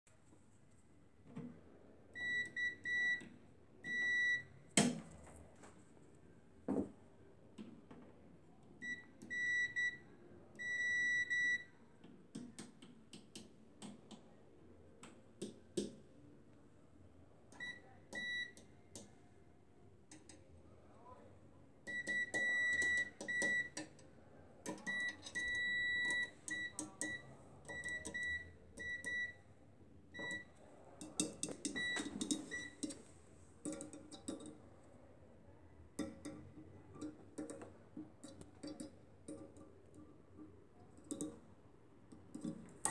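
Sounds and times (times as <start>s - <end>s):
multimeter continuity beeping: 24.8s - 29.4s.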